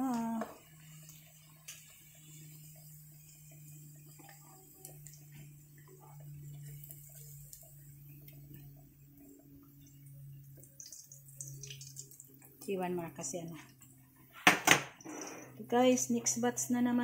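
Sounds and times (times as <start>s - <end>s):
meat sizzling in oil: 0.0s - 13.4s
low hum: 0.0s - 14.4s.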